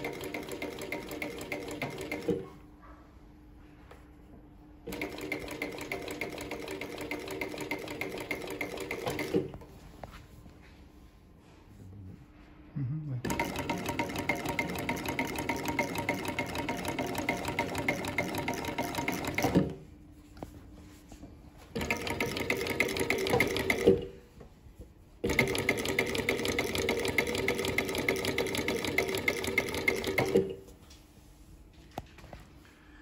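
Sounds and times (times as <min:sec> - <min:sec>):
sewing machine running fast: 0:00.0 - 0:02.4, 0:04.9 - 0:09.5, 0:13.3 - 0:19.8, 0:21.8 - 0:24.1, 0:25.2 - 0:30.5.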